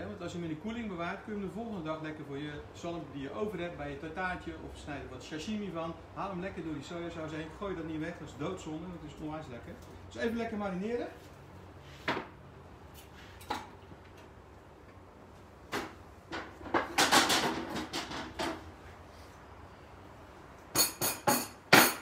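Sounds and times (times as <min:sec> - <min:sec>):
kitchen knocks and bumping: 0:15.7 - 0:18.7, 0:20.8 - 0:22.0.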